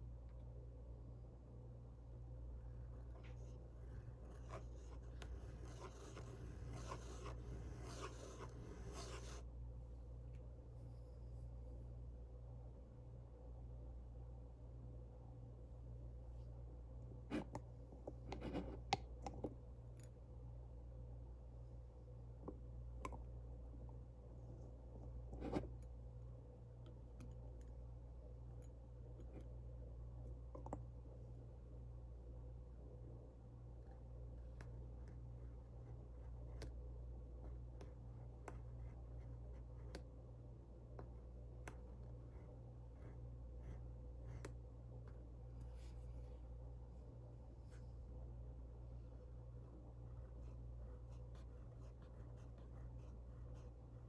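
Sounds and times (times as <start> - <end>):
steady low hum: 0.0 - 54.0
pen nib scratching on paper: 3.2 - 9.4, 37.4 - 40.1, 41.0 - 45.8, 50.1 - 54.0
faint clicks and taps: 22.4 - 23.3, 30.2 - 30.9.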